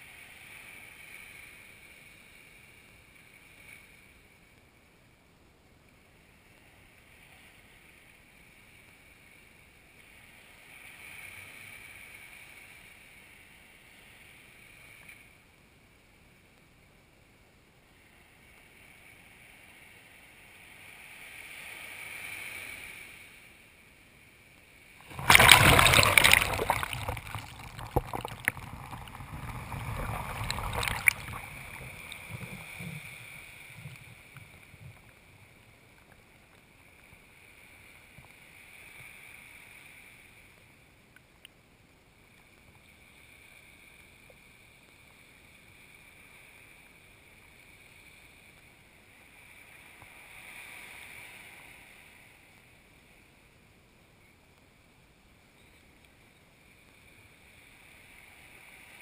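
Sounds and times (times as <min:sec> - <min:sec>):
wave rushing up sand: 0:25.0 - 0:34.9
faint swash: 0:25.0 - 0:35.8.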